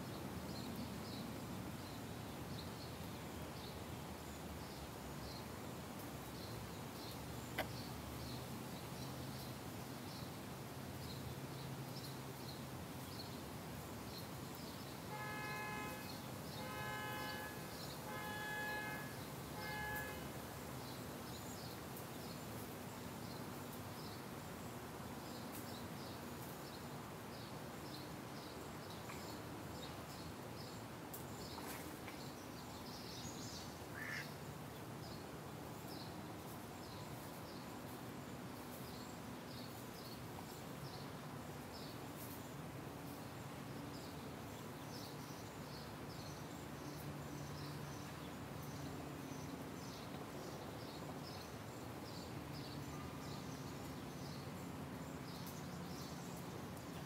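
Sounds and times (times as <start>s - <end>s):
nasal honks: 15.1s - 20.3s.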